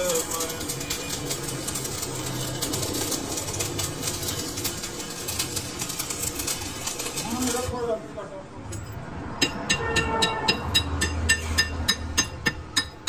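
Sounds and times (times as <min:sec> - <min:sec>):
rapid irregular clicks: 0:00.0 - 0:07.8.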